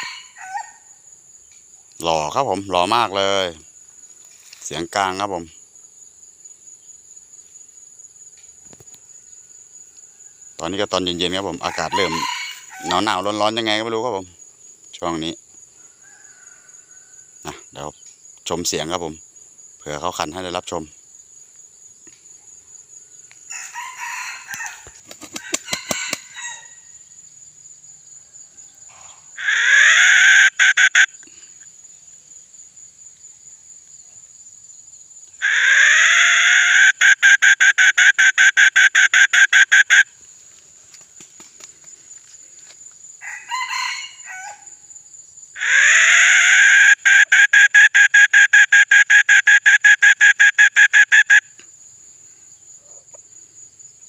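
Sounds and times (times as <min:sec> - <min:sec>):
rooster crowing: 0:00.0 - 0:00.9, 0:11.4 - 0:13.3, 0:15.8 - 0:17.4, 0:23.5 - 0:27.2, 0:28.1 - 0:30.6, 0:43.2 - 0:44.9
soft rooster calls: 0:00.0 - 0:00.9, 0:10.0 - 0:13.4, 0:15.8 - 0:17.6, 0:23.5 - 0:27.1, 0:43.2 - 0:44.9
insects shrilling: 0:00.0 - 0:53.9.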